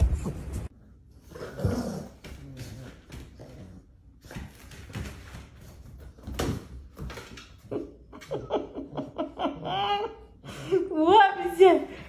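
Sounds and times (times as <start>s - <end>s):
puppy scampering on a hard floor: 2.1s - 7.8s
person laughing: 7.7s - 10.6s.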